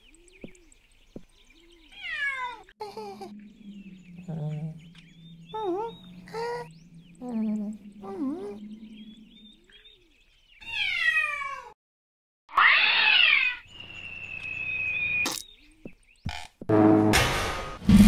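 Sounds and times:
cartoon cat yowls: 0:12.5 - 0:13.6
rough screeching caterwaul: 0:12.5 - 0:13.6
sharp hit: 0:16.7 - 0:18.0.

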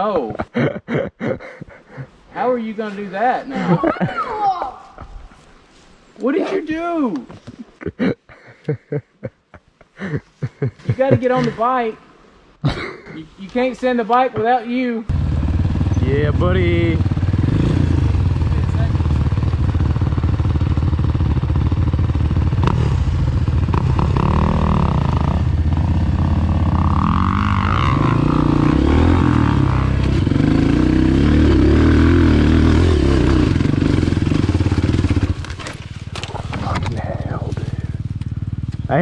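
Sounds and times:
dirt bike engine revving: 0:15.1 - 0:39.0.

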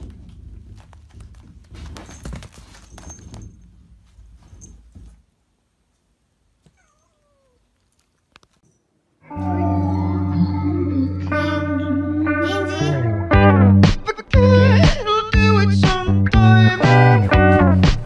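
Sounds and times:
rustling: 0:00.0 - 0:09.2
cat meowing: 0:06.6 - 0:08.1
loud music: 0:12.5 - 0:18.0.

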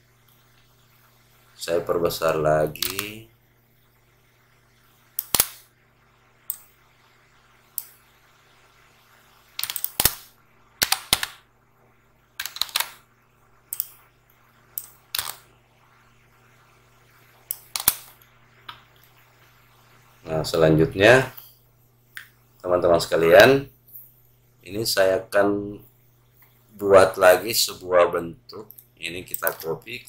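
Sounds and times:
faint electrical hum: 0:00.0 - 0:30.0
mouse and keyboard clicks: 0:02.8 - 0:03.2, 0:05.2 - 0:05.6, 0:09.6 - 0:10.2, 0:12.4 - 0:13.0, 0:13.7 - 0:14.0, 0:14.8 - 0:15.4, 0:17.5 - 0:18.2.

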